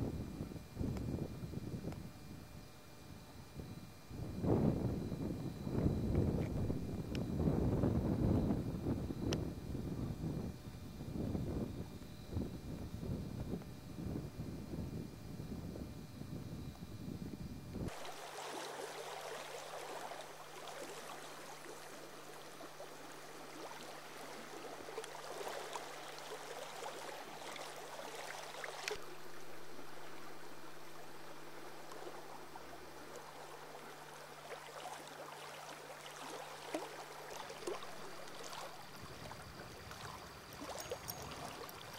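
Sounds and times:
faint steady hum: 0.0s - 41.9s
river water lapping: 17.9s - 41.9s.

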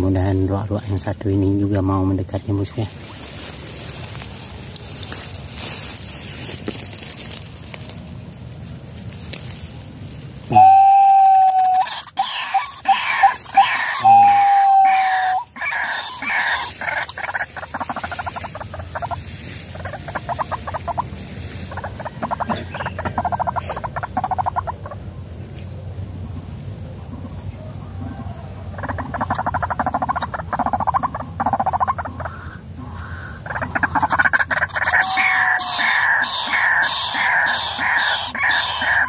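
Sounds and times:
waterhen calling: 10.5s - 25.0s, 28.8s - 39.0s.

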